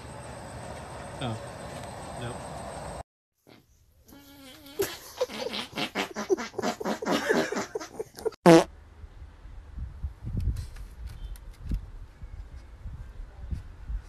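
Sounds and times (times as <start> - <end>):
dog fart buzz: 4.4 - 8.7.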